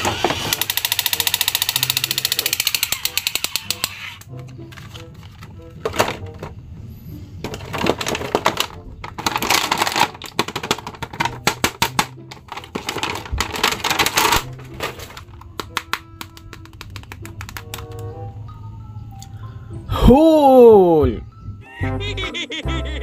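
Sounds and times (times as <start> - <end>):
quick sharp clicks: 0.5 - 4.3
plastic packaging crinkling: 7.5 - 17.2.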